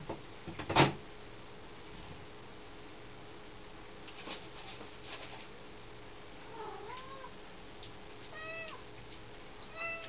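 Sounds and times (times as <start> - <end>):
cat meowing: 8.3 - 8.8, 9.7 - 10.0.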